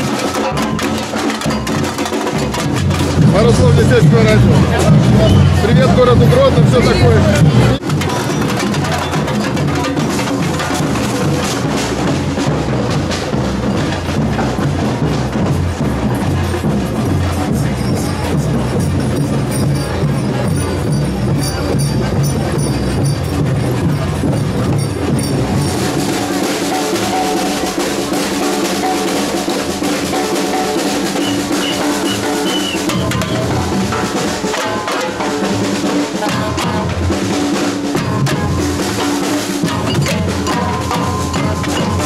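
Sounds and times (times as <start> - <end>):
rapid snare and hand drums: 0.0 - 42.0
deep bass drums pulsing: 2.5 - 26.2
bass-heavy music: 2.7 - 7.8.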